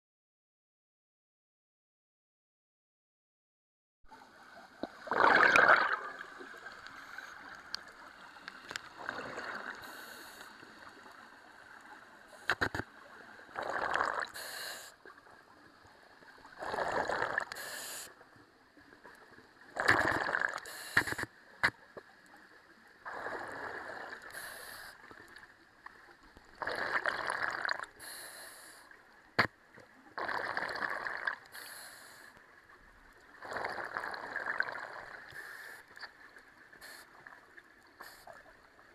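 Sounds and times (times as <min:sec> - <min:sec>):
diver exhaling bubbles: 0:05.0 - 0:06.6, 0:13.6 - 0:14.3, 0:16.6 - 0:17.6, 0:19.8 - 0:21.2, 0:26.6 - 0:28.0, 0:30.2 - 0:31.5, 0:33.4 - 0:35.3.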